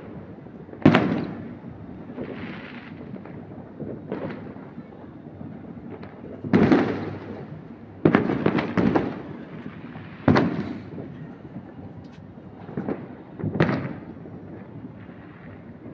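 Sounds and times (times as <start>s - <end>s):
fireworks bangs with echo: 0.0s - 15.9s.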